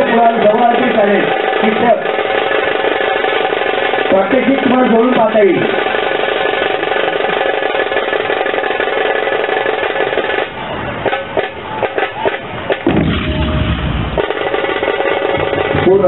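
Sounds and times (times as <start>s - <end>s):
brass cymbals clashing: 0.0s - 16.0s
barrel drum: 10.0s - 16.0s
heavy low rumble: 12.5s - 16.0s.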